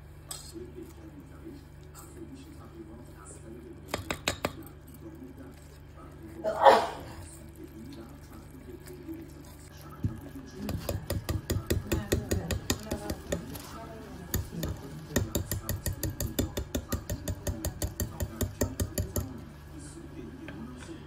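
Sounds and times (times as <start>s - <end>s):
whisk beating dough in metal bowl: 0.0s - 6.5s, 7.2s - 20.0s.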